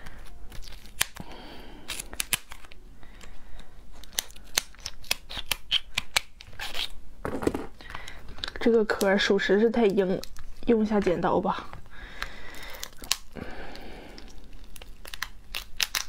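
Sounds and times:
lobster shell cracking: 0.1 - 1.2, 1.9 - 3.3, 4.0 - 6.9, 12.1 - 16.0.

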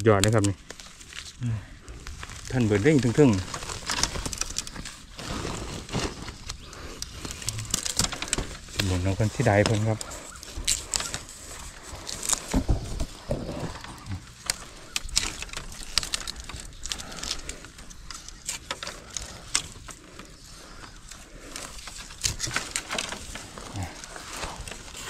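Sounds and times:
bamboo stems crackling and snapping: 0.0 - 25.0.

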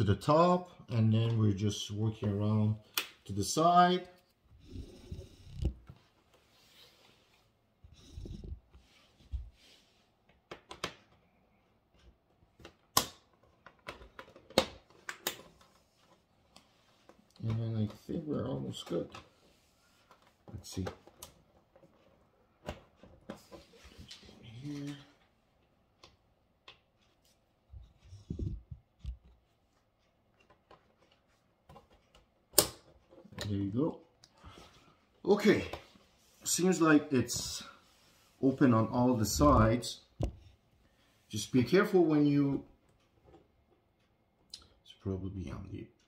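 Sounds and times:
plastic clips snapping loose: 12.6 - 15.6.

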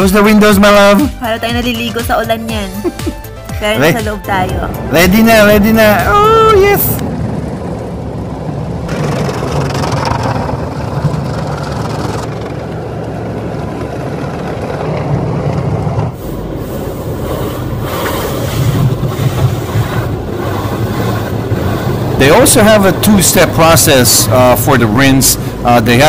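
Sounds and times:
low rumble of wash machinery: 3.7 - 26.0
water spraying on car: 4.9 - 26.0
brushes scrubbing car body: 16.2 - 23.1.

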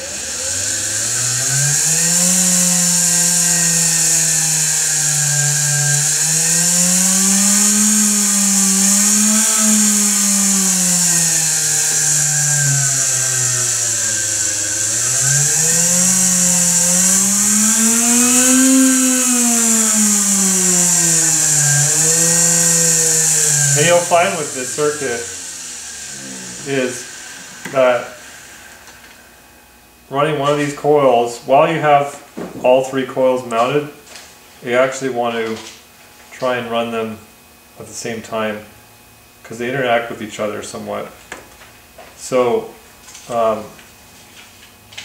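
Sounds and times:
small motor buzzing hum: 0.0 - 30.7
steady high hiss: 0.0 - 34.0.

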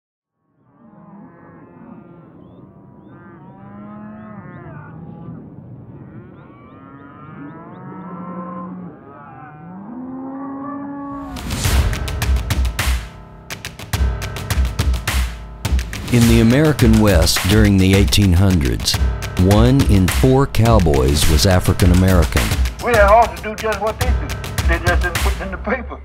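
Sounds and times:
cattle mooing: 0.7 - 11.3.

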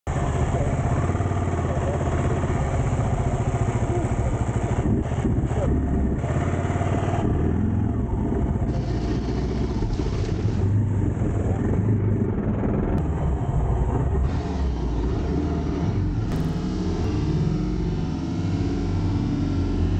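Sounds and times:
motorcycle engine thumping: 16.2 - 19.3.

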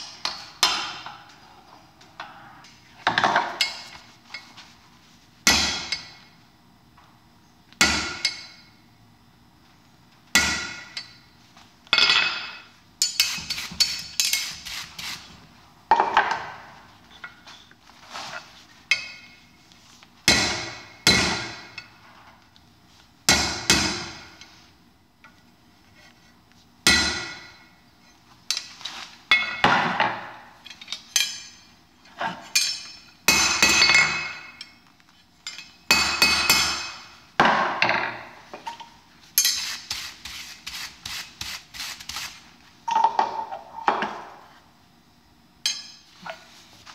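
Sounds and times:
hammer striking steel on anvil: 5.4 - 6.2, 7.8 - 8.8, 10.3 - 11.2, 20.3 - 21.9, 26.8 - 27.6, 32.6 - 34.8, 35.5 - 37.1, 45.6 - 46.1.

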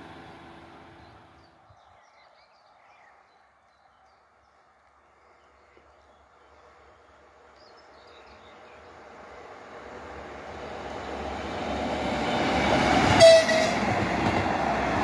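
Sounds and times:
distant diesel railbus rumble: 0.0 - 1.7, 6.3 - 15.0
small birds chirping: 1.0 - 9.2.

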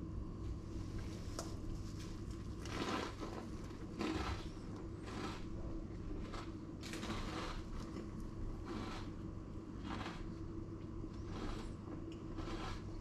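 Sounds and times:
steady low hum: 0.0 - 13.0
rustling and scraping handling noises: 0.9 - 4.7.

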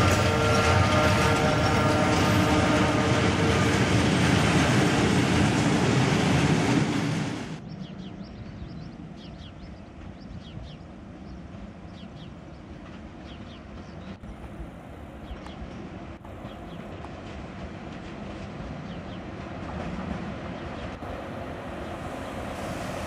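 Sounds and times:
train wheels rushing on rail: 0.0 - 8.2, 8.8 - 23.0
birds chirping: 7.6 - 14.4.

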